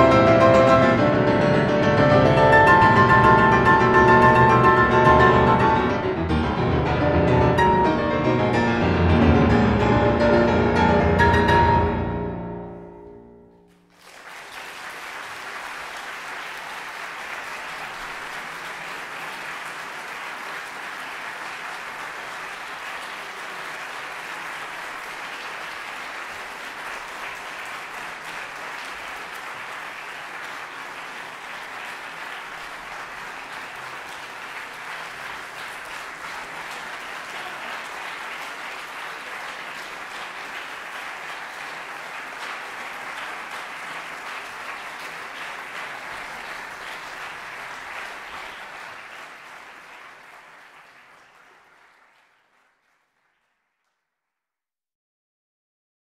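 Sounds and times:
audience applause: 0.0s - 9.2s, 13.6s - 54.0s
grand piano notes: 0.0s - 13.9s.

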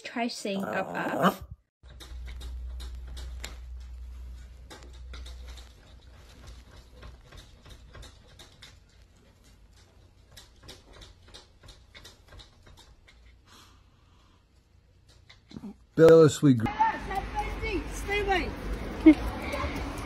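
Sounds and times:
dog claws tapping on glass door: 1.8s - 13.4s.

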